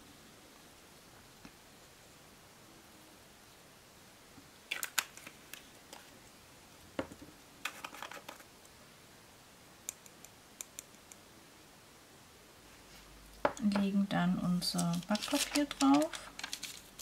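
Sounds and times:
plastic jars clicking and tapping: 13.4s - 13.8s.

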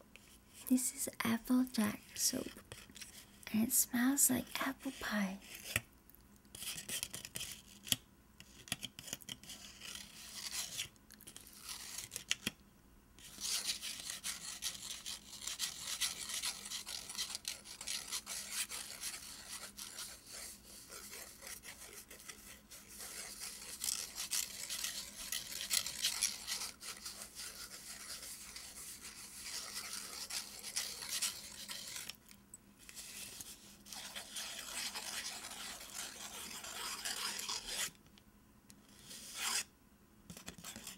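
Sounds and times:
fingernails scratching paper wrapper: 6.5s - 12.5s, 13.3s - 32.2s, 32.9s - 37.9s, 40.3s - 40.9s.

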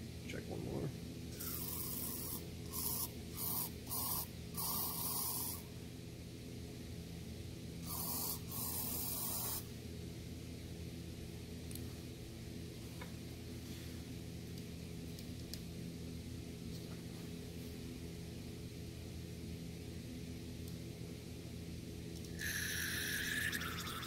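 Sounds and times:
aerosol spray hissing bursts: 1.4s - 5.6s, 7.8s - 9.6s.

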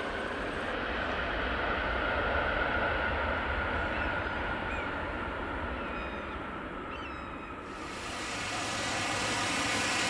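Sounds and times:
jet engines whining at low power: 0.0s - 10.0s
faint bird chirps: 5.8s - 7.7s
bright hiss: 7.7s - 10.0s.

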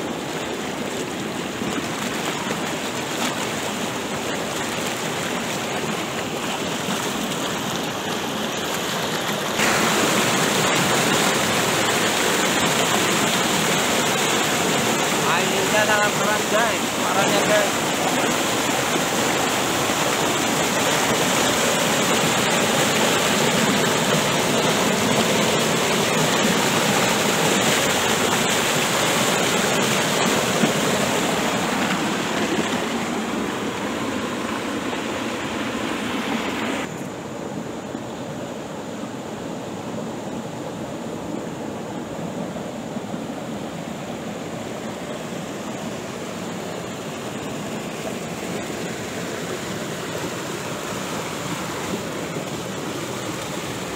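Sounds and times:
river water rushing over boulders: 0.0s - 53.9s.

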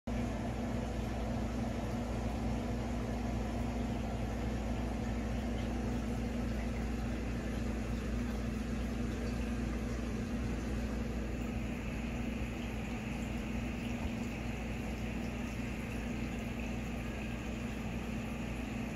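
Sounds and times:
aquarium pump hum: 0.1s - 18.9s
water circulating: 0.1s - 18.9s.

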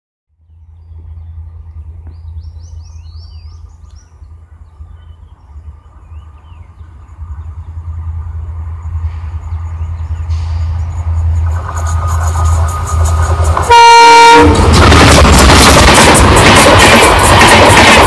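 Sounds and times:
steady low rumble: 0.4s - 13.7s, 14.5s - 17.8s
birds chirping: 0.5s - 11.4s.

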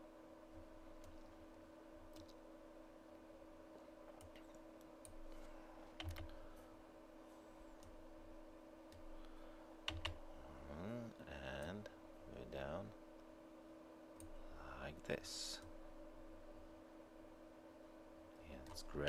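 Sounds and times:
steady low hum: 0.0s - 19.0s
computer mouse clicks: 2.1s - 2.4s, 4.1s - 6.4s
keyboard key presses: 6.0s - 6.3s, 9.9s - 10.2s.

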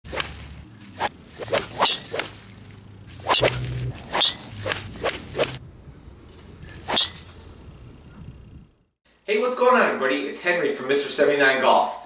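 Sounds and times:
golf club swishing through air: 0.1s - 7.5s.

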